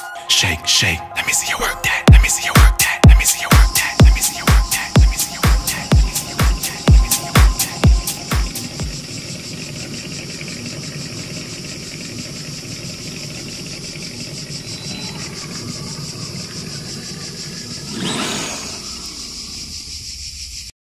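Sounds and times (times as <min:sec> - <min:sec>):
low rumble: 0:01.0 - 0:09.6
insects buzzing: 0:01.5 - 0:20.7
toy truck motor on gravel: 0:14.6 - 0:20.0.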